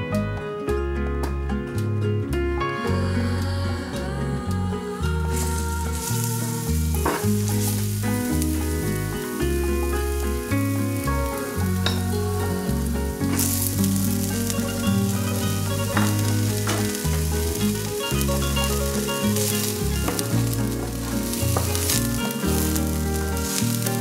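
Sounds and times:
background music with bass line: 0.0s - 24.0s
onion sizzling in hot oil: 5.3s - 24.0s.

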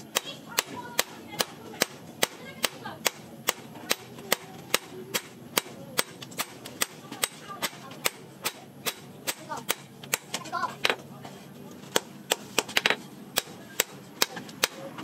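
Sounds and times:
hammer striking steel on anvil: 0.1s - 10.4s.

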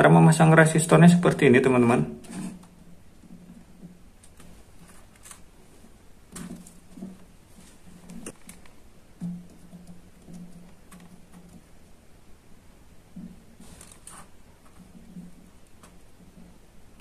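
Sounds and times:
faint clicks and taps: 6.3s - 11.9s.

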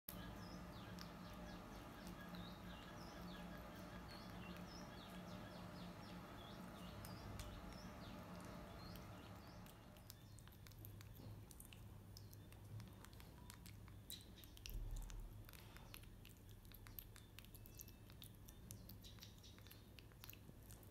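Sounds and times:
low hum: 0.1s - 11.5s
monkey chewing: 0.1s - 20.9s.

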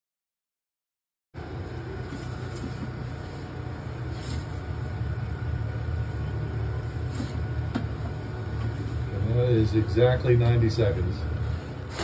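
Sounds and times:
low mechanical rumble: 1.4s - 12.0s.

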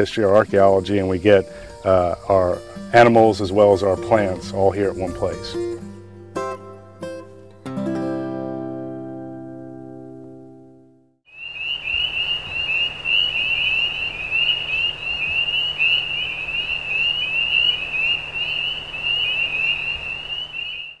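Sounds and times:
frogs peeping: 0.0s - 5.8s, 11.3s - 21.0s.

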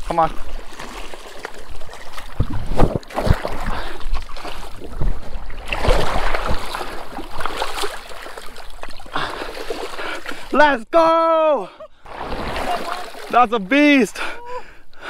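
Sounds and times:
river water splashing: 0.0s - 10.6s, 12.0s - 14.4s
wind rumble on microphone: 2.4s - 3.1s.

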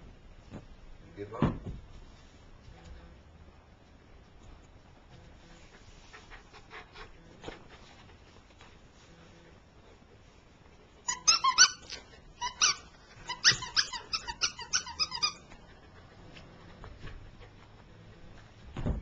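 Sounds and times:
squeaky dog toy squeaking: 11.0s - 15.6s.

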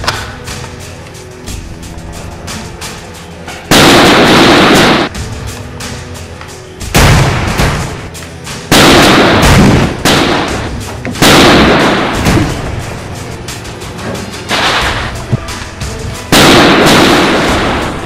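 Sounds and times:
loud gunshots: 3.7s - 5.1s, 6.9s - 8.1s, 8.7s - 12.8s, 14.5s - 15.2s, 16.3s - 18.0s.

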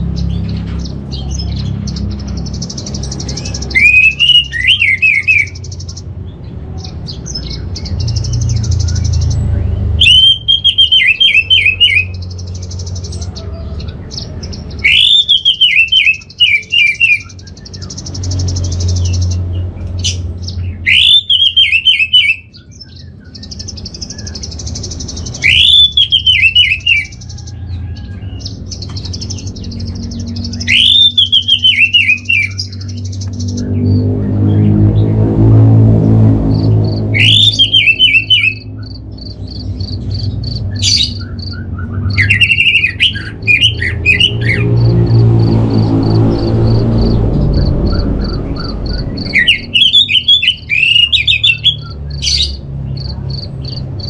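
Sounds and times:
low hum: 32.7s - 37.7s, 43.3s - 49.8s.

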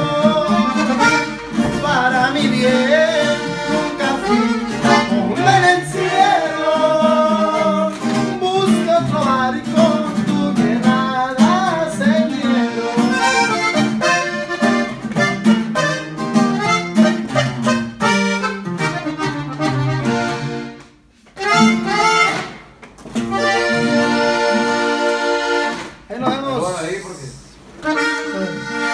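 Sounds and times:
man singing: 0.0s - 13.6s
button accordion: 0.0s - 26.7s, 27.7s - 28.9s
acoustic guitar: 0.0s - 28.9s.

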